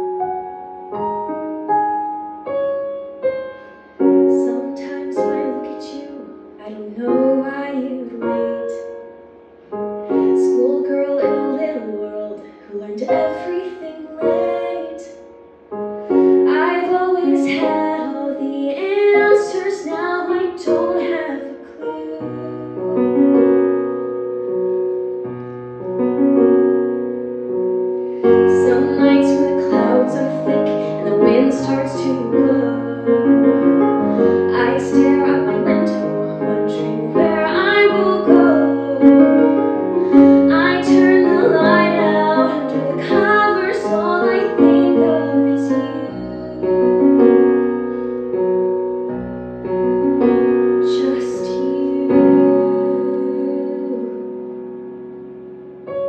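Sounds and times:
piano playing: 0.0 - 56.0
young woman singing a ballad: 4.2 - 9.0, 10.0 - 15.3, 16.0 - 23.5, 28.1 - 47.6, 50.1 - 54.5.

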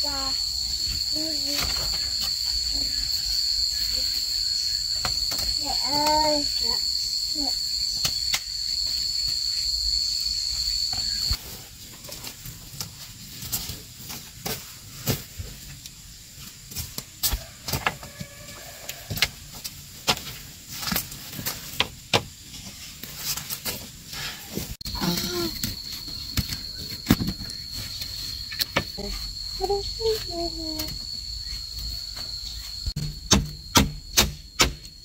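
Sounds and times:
high-pitched insect buzz: 0.0 - 11.4, 24.8 - 35.0.

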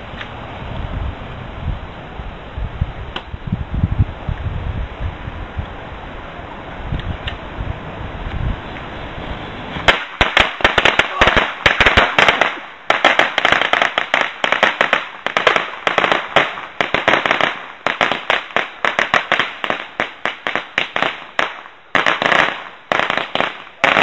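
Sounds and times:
firecrackers cracking: 9.7 - 24.0.

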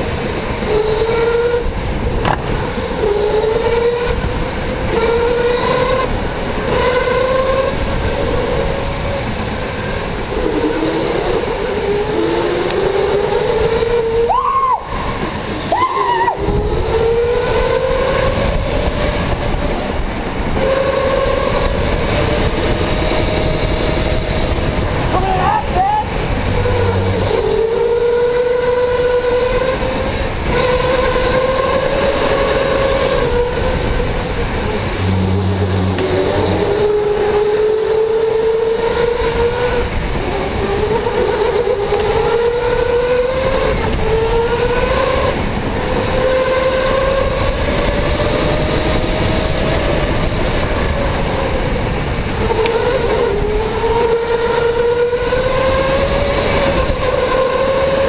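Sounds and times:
electric go-kart motor whining: 0.0 - 58.0
steady rushing noise: 0.0 - 58.0
short low buzz: 34.7 - 36.9.

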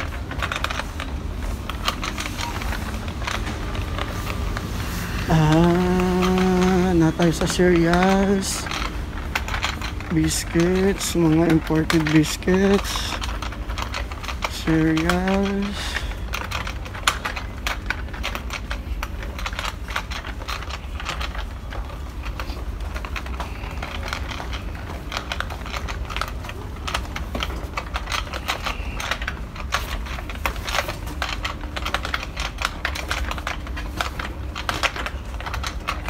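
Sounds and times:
shopping trolley rattling: 0.0 - 36.0.

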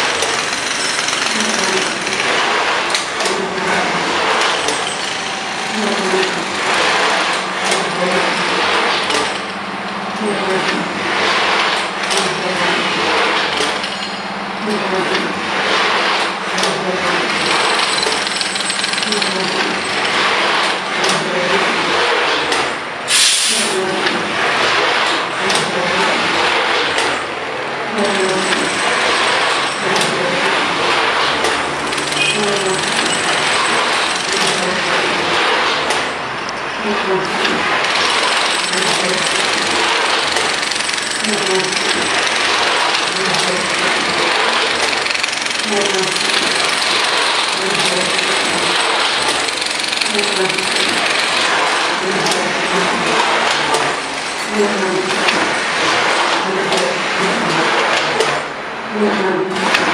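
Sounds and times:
steady rushing machine noise: 0.0 - 23.1, 23.8 - 59.9
machine motors humming: 0.0 - 59.9
hiss: 23.1 - 23.8.

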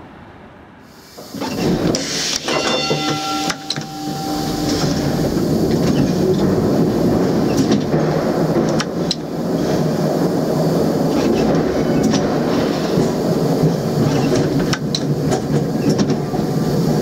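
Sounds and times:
tram rumbling: 0.0 - 17.0
steady whine: 1.4 - 14.0
clacks from rail joints: 4.6 - 16.9.

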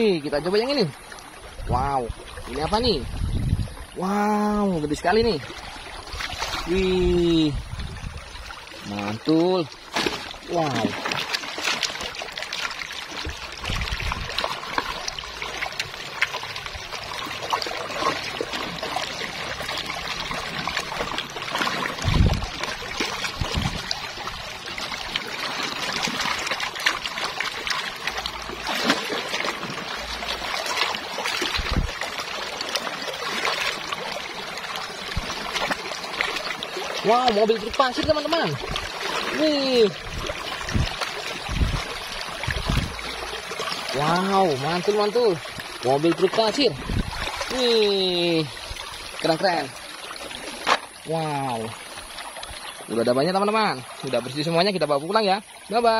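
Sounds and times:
water trickling and splashing: 0.0 - 55.9.

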